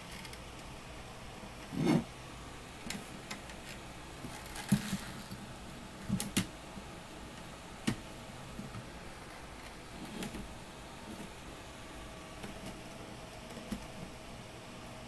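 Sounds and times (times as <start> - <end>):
faint steady hiss: 0.0 - 15.0.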